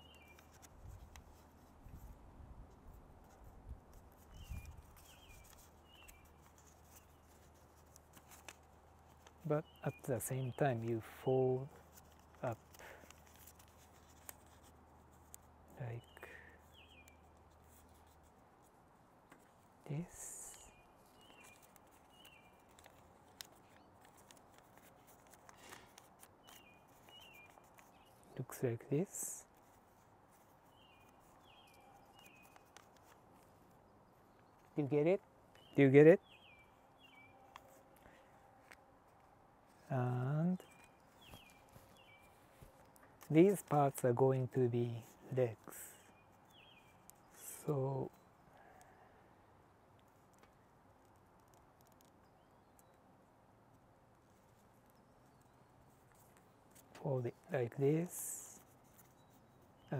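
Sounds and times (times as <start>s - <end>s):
bird chirps: 0.0s - 0.4s, 26.4s - 28.4s, 30.7s - 32.7s, 35.6s - 38.3s, 39.8s - 42.6s
paper rustling while folded: 0.1s - 15.5s, 20.4s - 28.5s, 29.4s - 34.8s.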